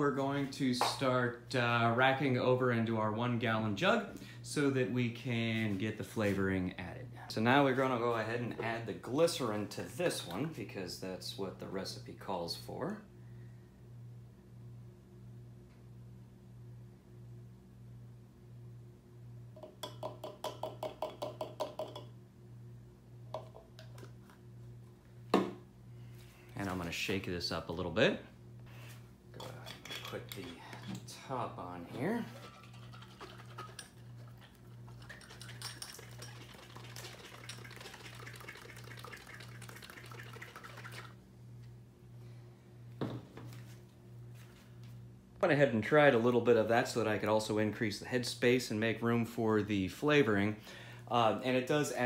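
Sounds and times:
steady low hum: 0.0 - 52.0
liquid sloshing in glass jug: 32.2 - 41.2.

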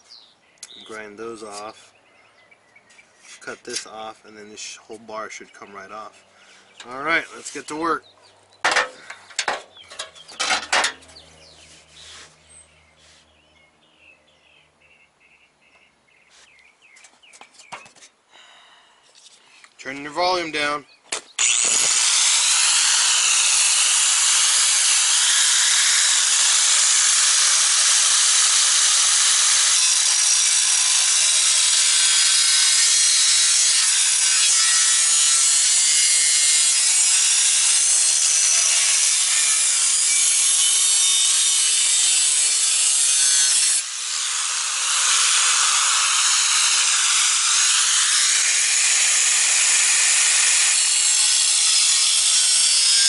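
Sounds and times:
angle grinder cutting steel: 21.4 - 53.0.

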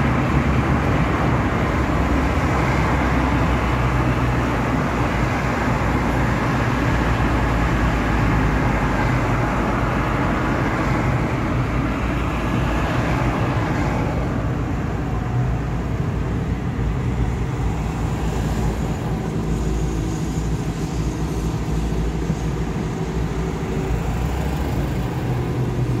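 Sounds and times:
car interior drone: 0.0 - 26.0.

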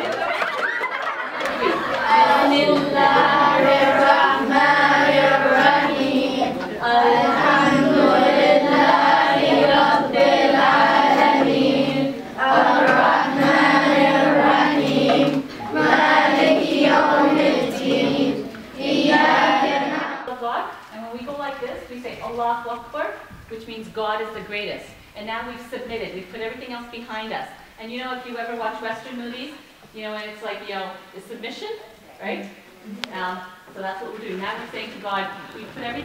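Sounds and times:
children singing together: 0.9 - 20.3.

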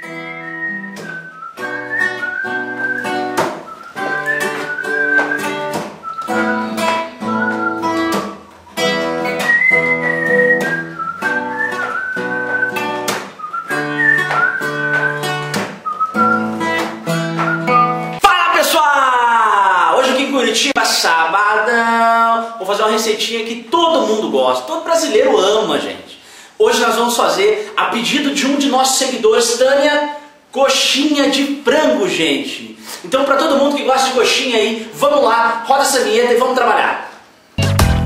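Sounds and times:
acoustic guitar strumming chords: 0.0 - 18.2, 37.6 - 38.0
person whistling a melody: 0.0 - 18.2.

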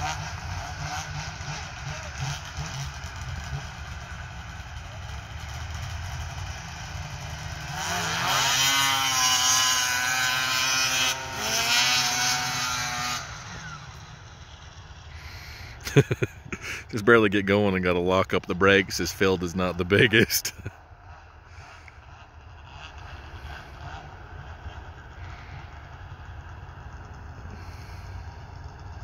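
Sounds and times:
snowmobile engines revving: 0.0 - 29.0.

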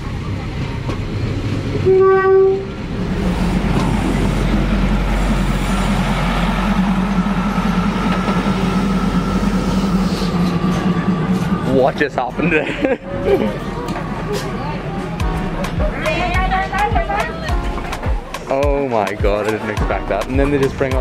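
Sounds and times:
train engine droning: 0.0 - 18.3
train horn: 1.8 - 2.8.

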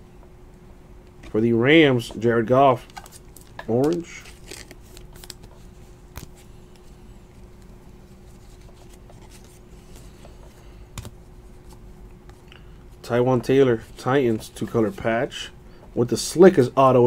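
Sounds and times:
faint steady hum: 0.0 - 17.0
cards rustling and clicking: 2.8 - 12.6.

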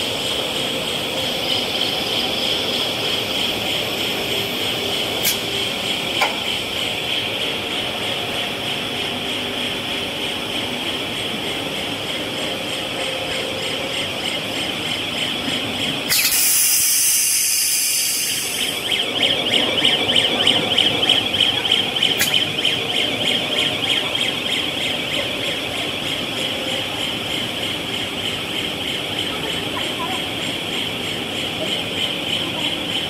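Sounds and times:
machine high-pitched whine: 0.0 - 33.0
loud hiss: 16.1 - 18.5.

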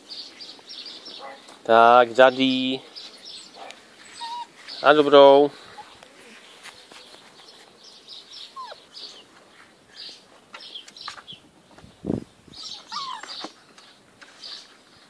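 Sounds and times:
puppies squeaking and whimpering: 3.4 - 5.0, 8.4 - 9.3, 12.6 - 13.6
puppy falling whines: 12.7 - 13.6.

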